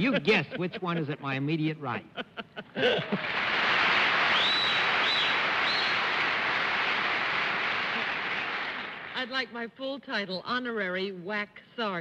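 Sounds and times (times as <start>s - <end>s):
audience laughing and applauding: 2.2s - 9.2s.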